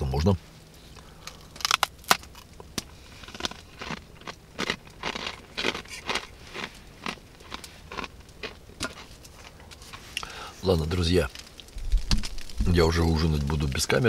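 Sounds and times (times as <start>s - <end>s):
person chewing food: 1.2s - 10.3s.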